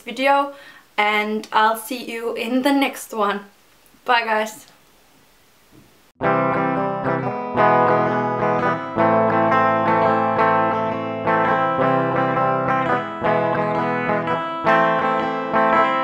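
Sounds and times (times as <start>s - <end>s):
ukulele playing: 6.2s - 16.0s.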